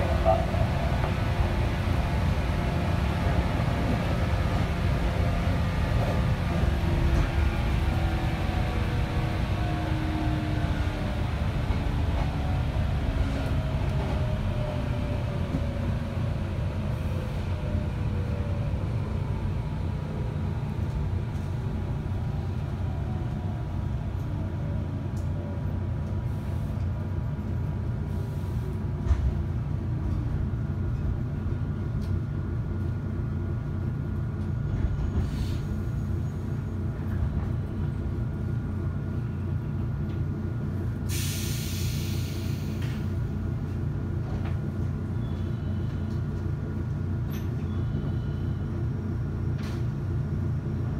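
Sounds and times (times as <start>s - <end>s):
train interior rumble: 0.0s - 50.9s
compressed air hiss: 41.1s - 42.8s.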